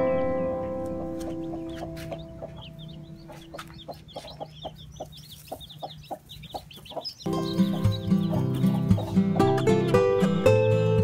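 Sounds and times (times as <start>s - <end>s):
chicks peeping: 0.8s - 10.0s
hen clucking softly: 1.4s - 9.2s.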